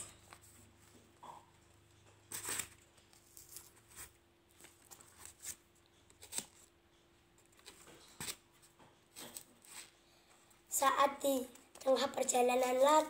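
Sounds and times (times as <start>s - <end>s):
paper rustling and crinkling: 2.3s - 5.6s.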